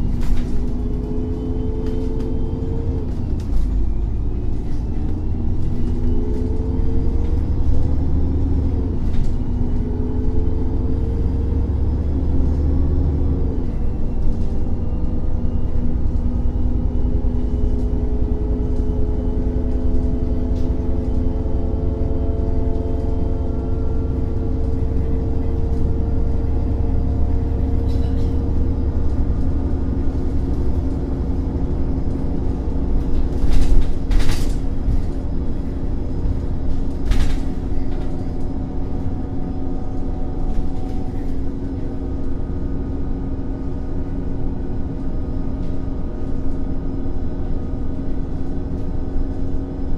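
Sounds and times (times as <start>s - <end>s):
bus engine rumble with whine: 0.0s - 49.9s.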